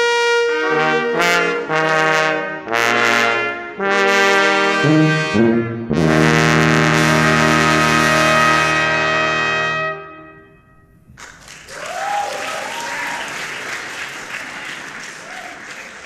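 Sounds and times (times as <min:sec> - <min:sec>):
brass ensemble chord: 0:00.0 - 0:11.0
audience applause: 0:11.2 - 0:16.0.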